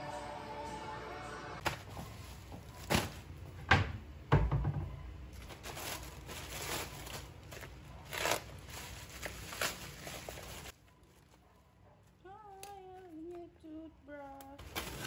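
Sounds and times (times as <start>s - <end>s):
plastic bag crinkling: 5.4s - 11.4s, 14.2s - 15.0s.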